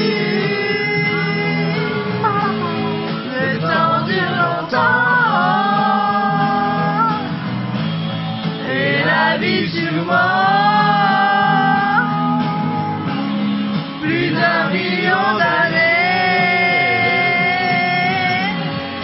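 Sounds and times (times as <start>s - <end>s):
instrumental accompaniment: 0.0s - 19.0s
person singing long notes: 8.6s - 13.3s.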